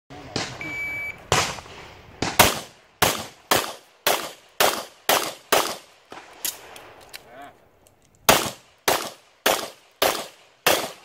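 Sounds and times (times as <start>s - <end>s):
shot timer beep: 0.6s - 1.2s
pistol shots: 1.3s - 7.0s, 8.3s - 11.0s.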